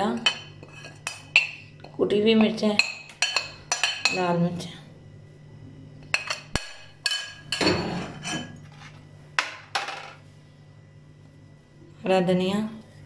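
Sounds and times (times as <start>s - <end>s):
spoon scraping a plate: 0.2s - 1.6s, 6.2s - 9.0s.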